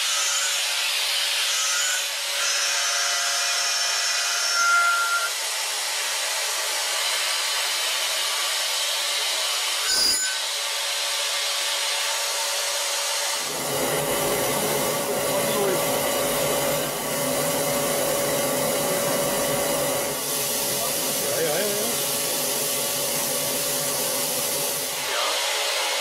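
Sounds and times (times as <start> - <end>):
milling machine cutting hiss: 13.3 - 26.0.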